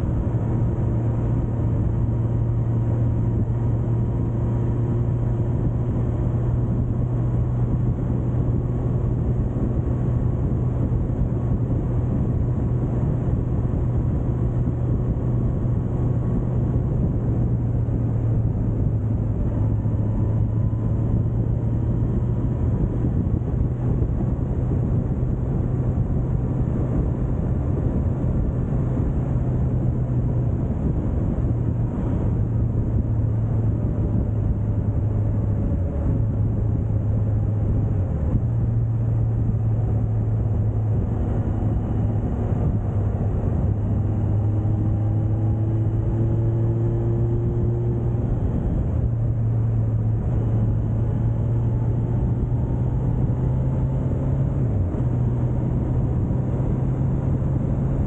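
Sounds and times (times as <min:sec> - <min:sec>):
motorcycle engine cruising: 0:00.0 - 0:58.0
wind and road noise: 0:00.0 - 0:58.0.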